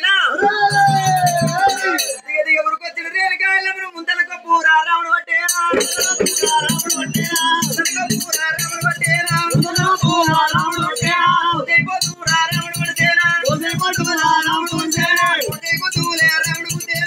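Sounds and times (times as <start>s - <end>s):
fast steady drumming: 0.4s - 2.2s, 5.5s - 17.0s
jingling percussion: 0.4s - 2.2s, 5.5s - 17.0s
voices singing: 5.7s - 17.0s.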